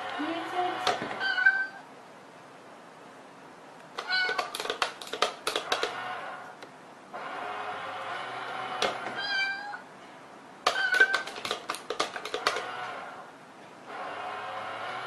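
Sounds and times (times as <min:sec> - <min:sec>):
cat meowing: 0:01.2 - 0:01.9, 0:04.0 - 0:04.6, 0:09.2 - 0:09.9, 0:10.7 - 0:11.3
sharp clicks and taps of toy: 0:03.8 - 0:06.0, 0:10.6 - 0:12.7.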